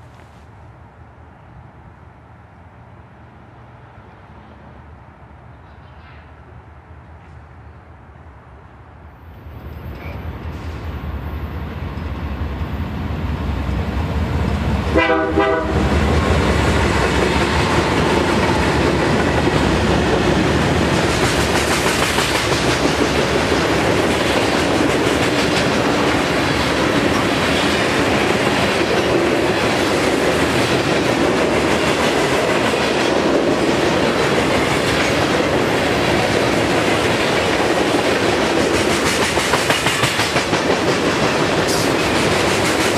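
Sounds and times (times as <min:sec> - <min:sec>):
freight train rumbling: 0:00.0 - 0:42.9
wheels rumbling on rails: 0:09.6 - 0:42.9
train horn blast: 0:14.9 - 0:16.0.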